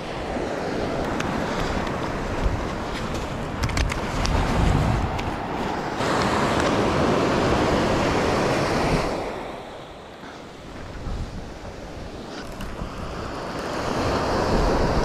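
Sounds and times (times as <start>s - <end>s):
surf washing onto beach: 0.0s - 15.0s
wind buffeting microphone: 0.0s - 15.0s.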